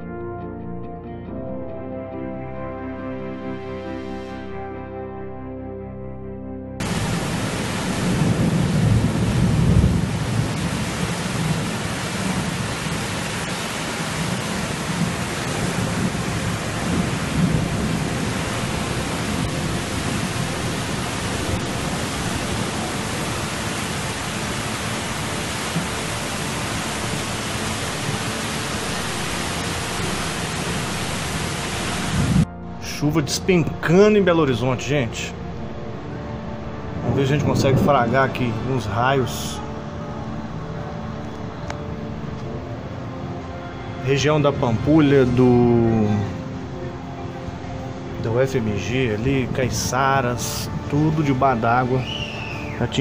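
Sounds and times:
rumbling thunder: 6.8s - 24.1s, 36.9s - 38.8s
floodwater rushing: 6.8s - 33.9s, 34.6s - 53.0s
torrential rain: 6.8s - 53.0s.

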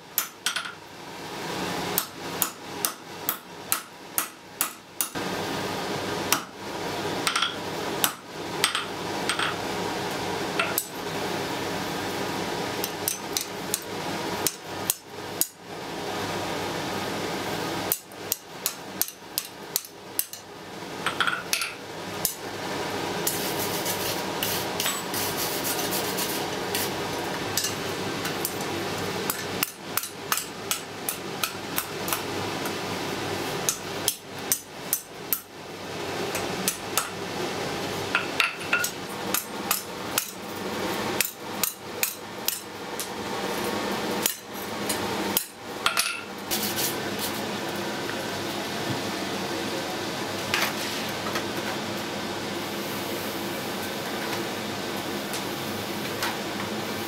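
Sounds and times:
hammer striking iron on anvil: 2.0s - 5.2s.

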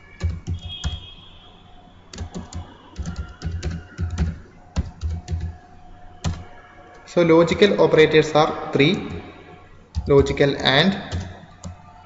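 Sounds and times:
typing on computer keyboard: 0.0s - 1.0s, 2.1s - 7.1s, 9.0s - 9.3s, 9.9s - 12.0s.

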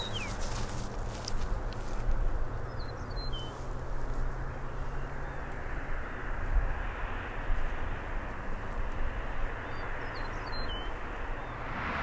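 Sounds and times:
bird chirps: 0.0s - 0.4s, 9.6s - 11.6s
distant engine rumble: 0.0s - 12.0s.

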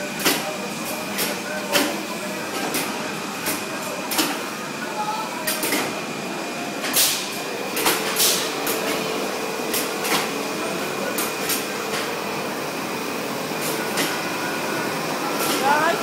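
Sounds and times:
ride machinery whirring hum: 0.0s - 16.0s
machinery clicks and clunks: 13.6s - 14.3s.

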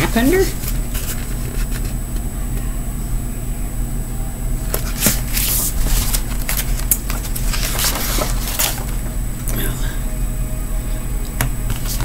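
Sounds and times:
paper rustling: 0.0s - 2.0s, 4.8s - 9.1s
low electrical hum: 0.0s - 12.0s.

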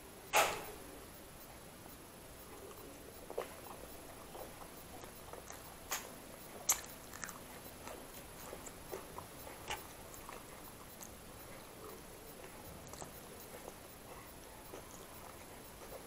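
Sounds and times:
person chewing and biting: 2.6s - 13.9s, 14.6s - 16.0s.

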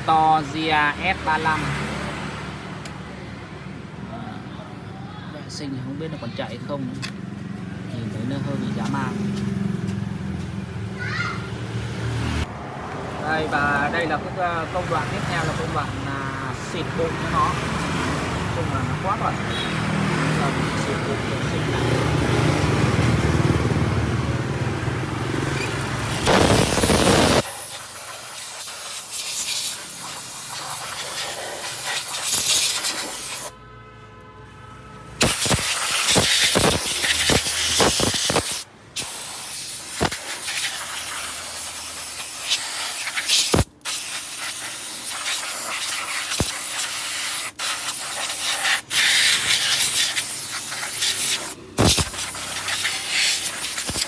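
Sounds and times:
compressed air blow gun hissing: 26.2s - 33.5s, 35.2s - 54.0s.

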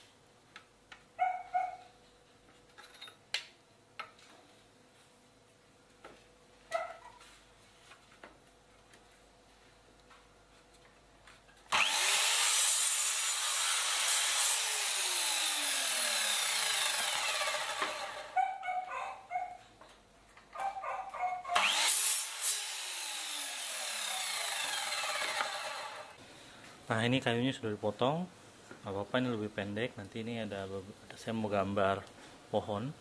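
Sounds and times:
miter saw motor whine: 11.7s - 18.4s, 21.6s - 26.2s
saw blade cutting wood: 11.7s - 18.4s, 21.5s - 26.2s.

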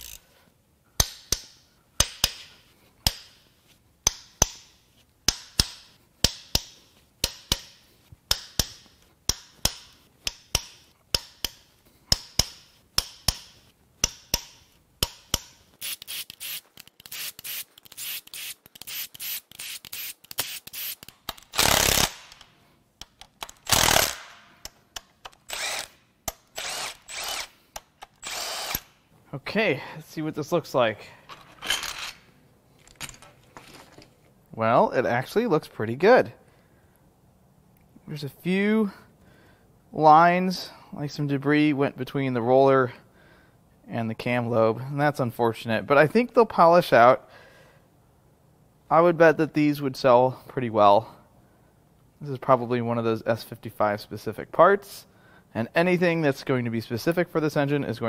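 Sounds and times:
hand ratchet clicking: 0.0s - 0.2s, 1.0s - 3.4s, 5.3s - 28.9s.

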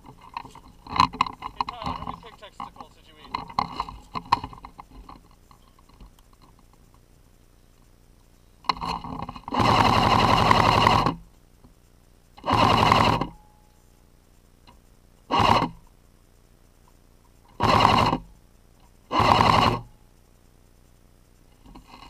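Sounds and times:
airsoft rifle automatic fire: 12.4s - 13.3s.

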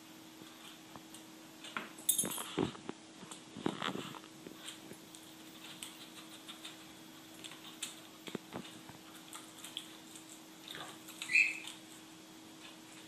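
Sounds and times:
parrot high-pitched call: 11.2s - 11.8s.

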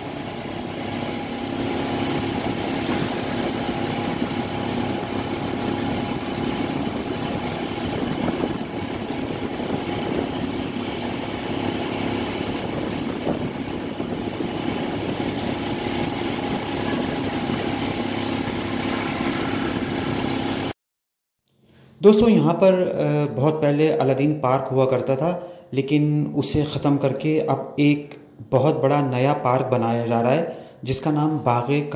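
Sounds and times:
road noise: 0.0s - 20.7s
vehicle engine drone: 0.0s - 20.7s.

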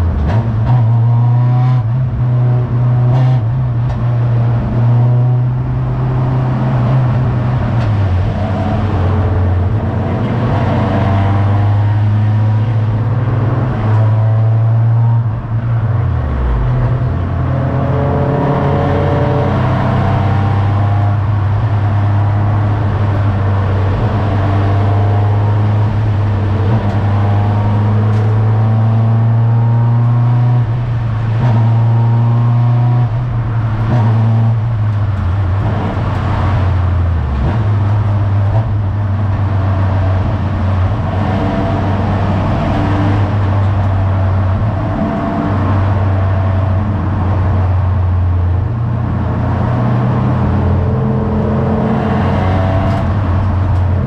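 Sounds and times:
race car engine at high revs: 0.0s - 54.0s.

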